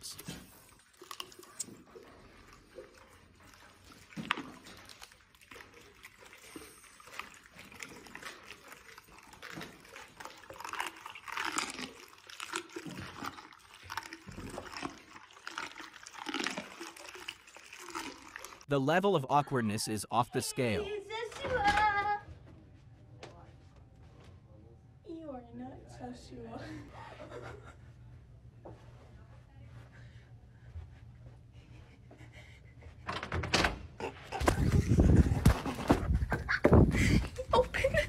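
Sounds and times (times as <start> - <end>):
camels chewing and crunching: 0.0 - 18.7.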